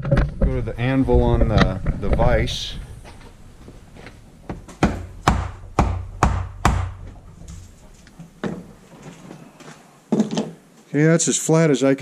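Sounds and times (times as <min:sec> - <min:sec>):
hammer striking metal ball: 0:04.8 - 0:07.1.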